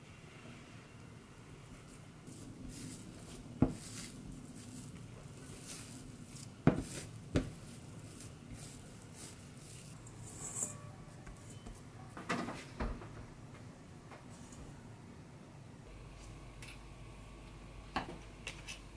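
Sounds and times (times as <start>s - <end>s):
dough rubbing and squishing: 1.6s - 10.7s
dough knocking on counter: 6.6s - 7.6s.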